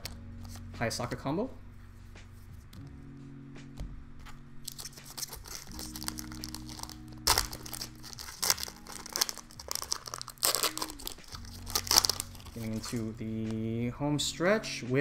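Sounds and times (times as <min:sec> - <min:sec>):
plastic wrapper crinkling: 0:04.6 - 0:13.6
plastic wrapper ripping: 0:04.6 - 0:13.6.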